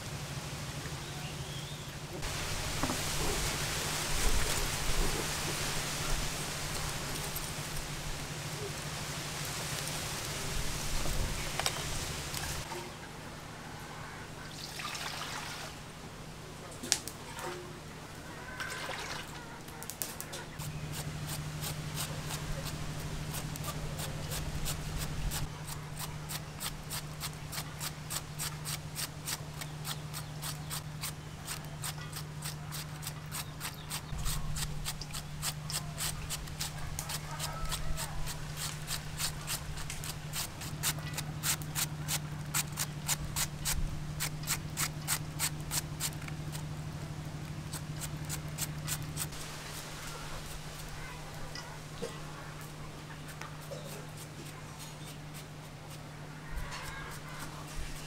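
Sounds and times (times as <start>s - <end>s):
cabbage shredding scraping strokes: 19.7s - 46.7s, 47.5s - 58.0s.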